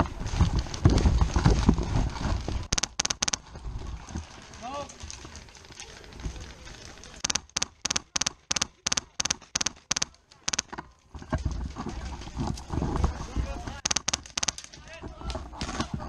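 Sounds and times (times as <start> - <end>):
handling rumble: 0.0 - 2.7, 3.4 - 7.2, 10.8 - 13.8.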